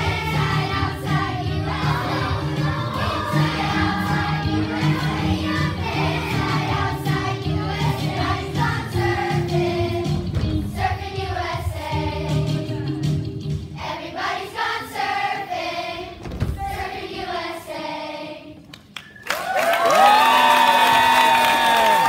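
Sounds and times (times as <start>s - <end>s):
pop backing track with bass: 0.0s - 13.8s
children's choir singing: 0.0s - 18.7s.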